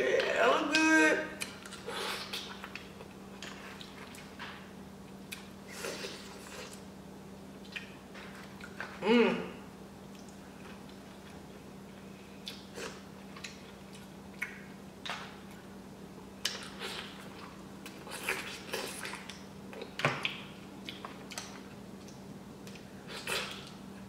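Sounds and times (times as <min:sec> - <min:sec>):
steady low hum: 0:00.0 - 0:24.0
eating sounds: 0:07.6 - 0:09.5, 0:16.4 - 0:23.8.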